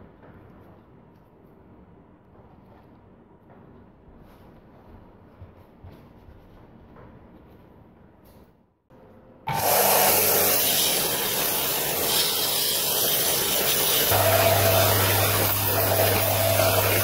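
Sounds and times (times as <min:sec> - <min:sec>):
belt sander grinding steel: 0:09.5 - 0:17.0
low motor hum: 0:14.1 - 0:17.0.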